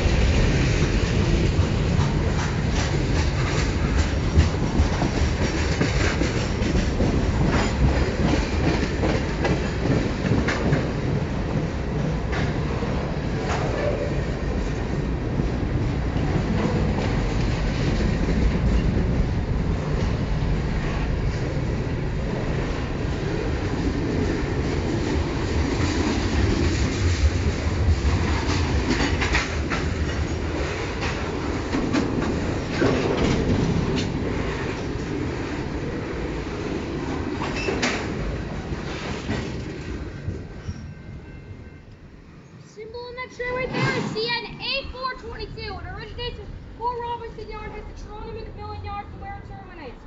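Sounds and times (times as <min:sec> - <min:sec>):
clickety-clack over rail joints: 0:00.0 - 0:42.0, 0:43.4 - 0:49.3
train wheels rumbling on rails: 0:00.0 - 0:50.0.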